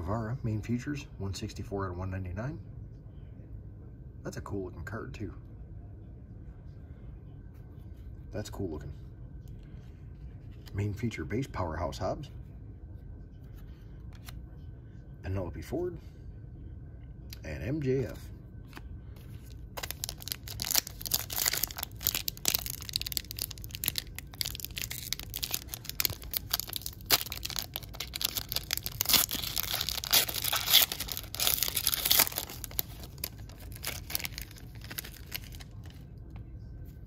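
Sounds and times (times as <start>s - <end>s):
foil wrapper crinkling: 19.3s - 36.0s.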